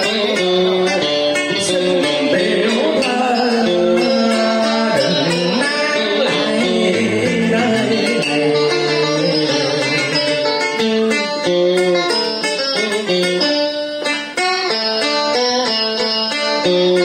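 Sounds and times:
man singing into microphone: 0.0 - 12.5
plucked guitar: 0.0 - 17.0.

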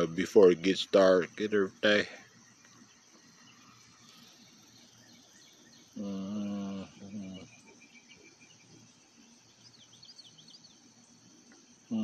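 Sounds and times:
bird chirps: 0.0 - 12.0
insects chirring: 0.0 - 12.0
person humming: 6.0 - 7.2.

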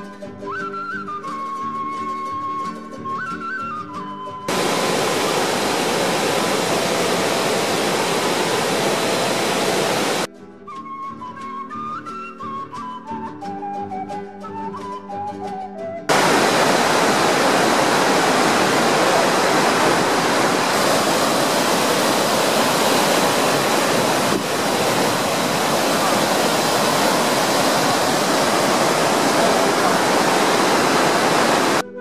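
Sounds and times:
waterfall rushing: 4.5 - 10.3, 16.1 - 31.8.

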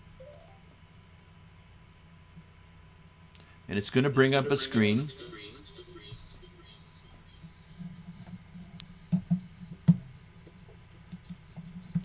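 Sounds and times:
audio feedback whine: 4.1 - 12.0.

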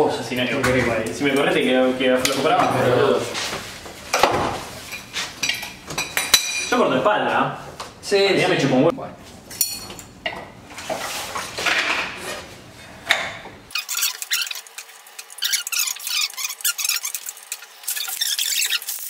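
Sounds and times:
thin high fast chatter: 13.7 - 19.0.

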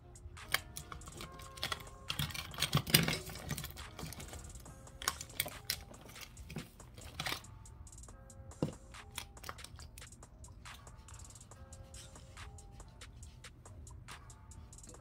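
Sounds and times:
quiet background music: 0.0 - 15.0
small items clicking and rattling: 0.4 - 7.6, 8.6 - 11.4.

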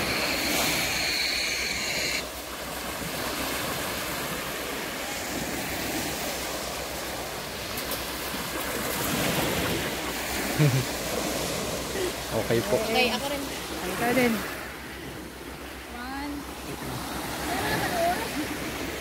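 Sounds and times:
high steady whine: 0.0 - 2.4
small waves breaking on shore: 0.0 - 19.0.

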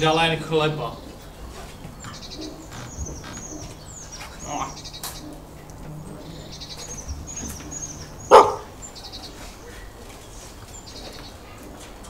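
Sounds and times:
birds chirping: 0.0 - 12.0
dog bark: 8.3 - 8.7.

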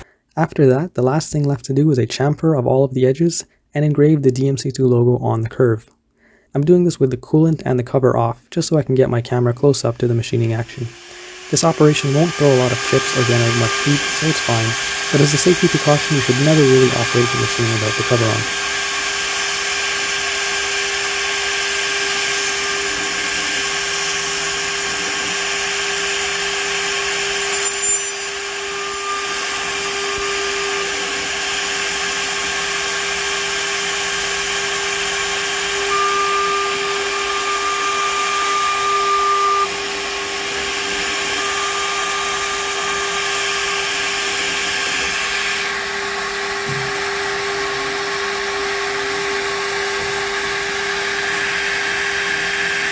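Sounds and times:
mill spindle whining: 10.9 - 52.9
metal cutting tone: 26.3 - 32.2, 34.7 - 39.9.

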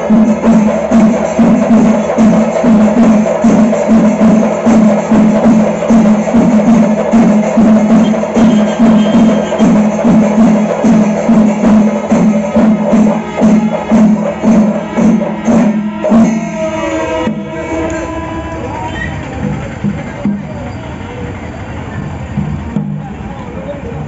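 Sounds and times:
metallic jingle: 0.0 - 17.1
drum ensemble playing: 0.0 - 21.1, 22.1 - 23.8.

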